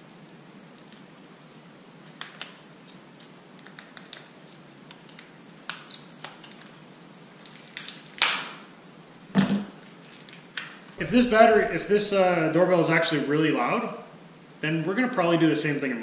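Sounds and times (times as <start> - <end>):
plastic packaging crinkling: 2.1 - 8.3, 9.7 - 11.0.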